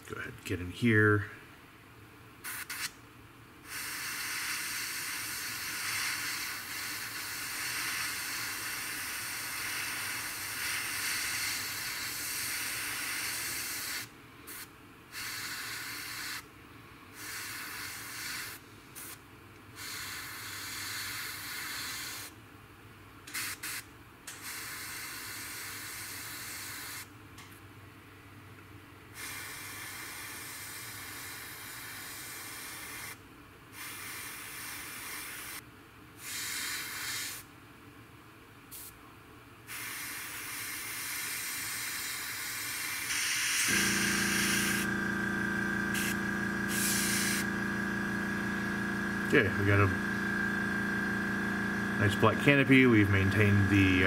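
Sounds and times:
airbrush spraying hiss: 43.1 - 49.6.

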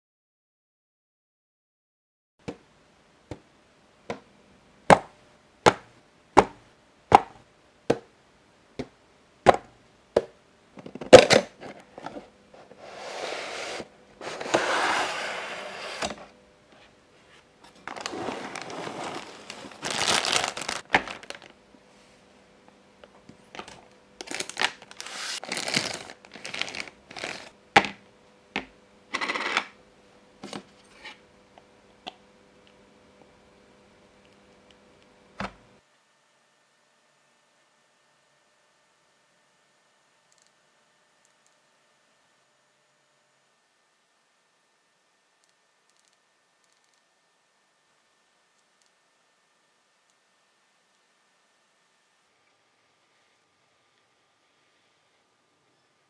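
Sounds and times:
cardboard and plastic rustling: 17.2 - 21.6, 23.4 - 27.6.

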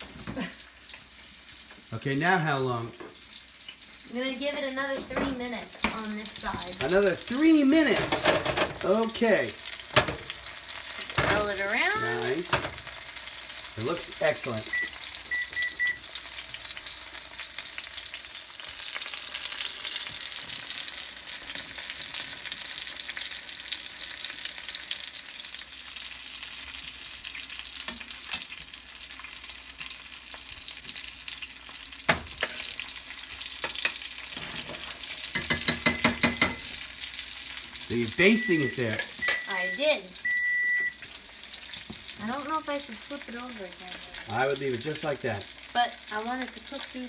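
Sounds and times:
fish sizzling in a frying pan: 0.0 - 47.0
short high beeps: 14.7 - 16.0, 38.3 - 41.0.

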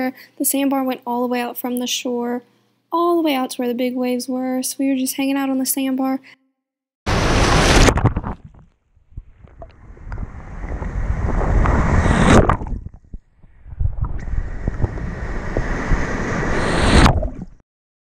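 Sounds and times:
surf waves breaking and sloshing: 9.6 - 12.8, 13.8 - 17.6.

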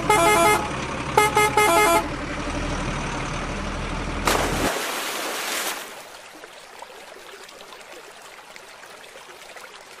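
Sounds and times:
big splash into water: 4.2 - 6.1
water sloshing and dripping: 4.3 - 10.0.

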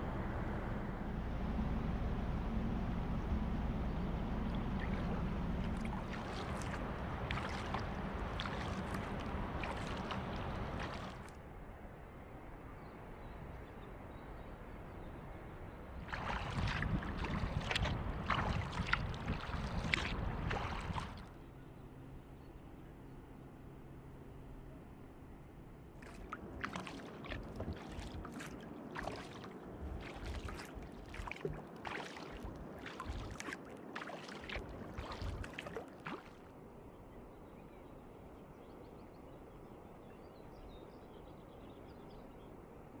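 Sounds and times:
soft water lapping: 0.0 - 43.0
paddle splashing in water: 4.5 - 11.4, 16.0 - 21.4, 26.0 - 36.5.

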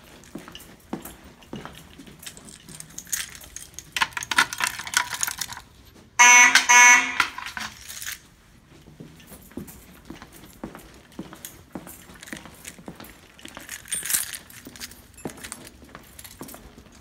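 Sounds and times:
keys jangling and clicking: 0.0 - 8.3, 9.2 - 17.0
fire alarm horn blasts: 6.2 - 7.8.

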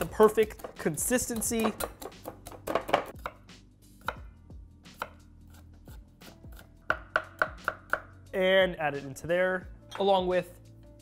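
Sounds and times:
knife chopping on wooden board: 0.1 - 4.3, 4.9 - 5.6, 6.2 - 8.1.

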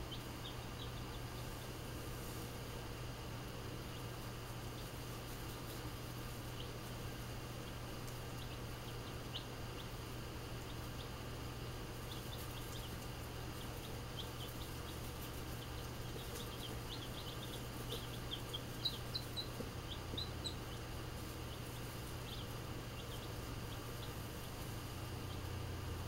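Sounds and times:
baby chicks peeping: 0.0 - 26.0
low hum: 0.0 - 26.0.

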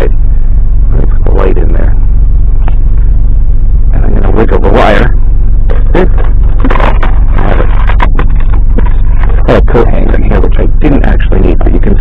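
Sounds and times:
loud steady low rumble: 0.0 - 12.0.

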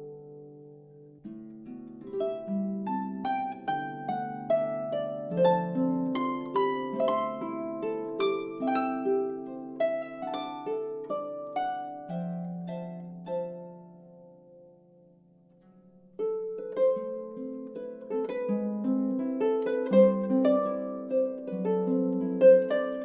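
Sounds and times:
gentle plucked-string melody: 0.0 - 23.0.

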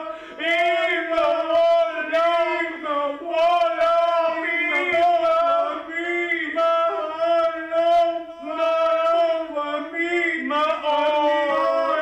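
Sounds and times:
man singing long held notes: 0.0 - 12.0.

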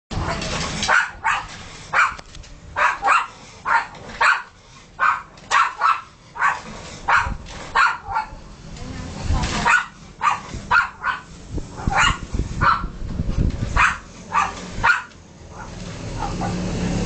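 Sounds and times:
dog barking sharply: 0.8 - 2.2, 2.8 - 8.4, 9.6 - 12.9, 13.8 - 16.6.

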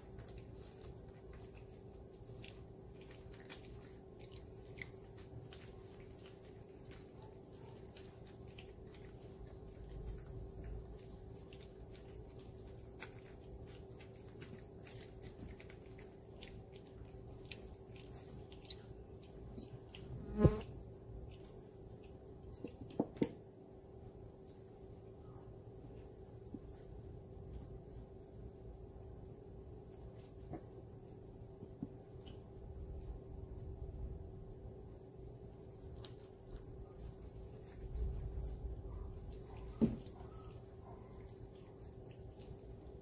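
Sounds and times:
puppies lapping and chewing: 0.0 - 43.0
buzzing hum: 20.0 - 20.8.

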